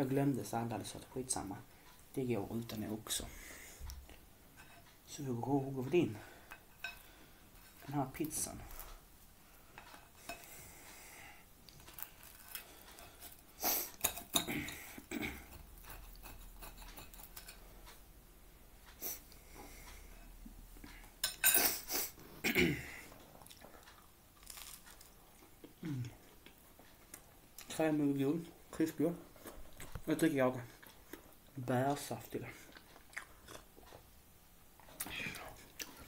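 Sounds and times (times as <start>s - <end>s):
cutlery scraping on a plate: 4.6s - 5.0s, 6.5s - 7.8s, 9.8s - 10.6s, 12.4s - 17.6s, 21.2s - 22.1s
chewing: 23.1s - 27.8s, 32.5s - 34.1s, 34.8s - 36.0s.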